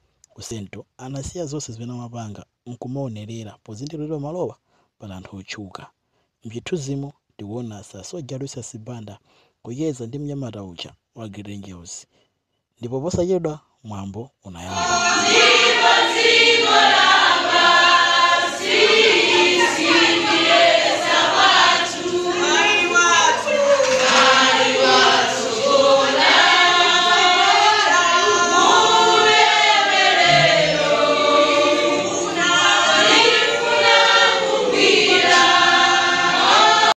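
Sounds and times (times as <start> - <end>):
choir singing: 14.7 - 37.0.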